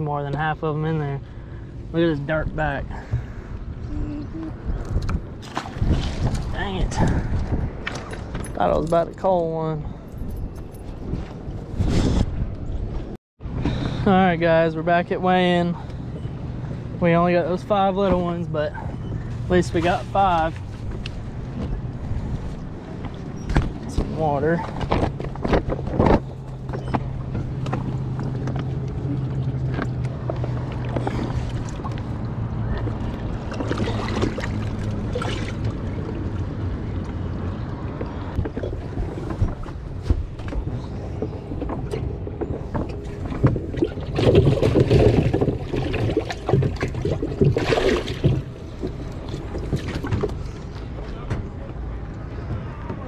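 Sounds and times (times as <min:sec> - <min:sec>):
water sloshing: 0:04.9 - 0:08.6, 0:17.5 - 0:51.0.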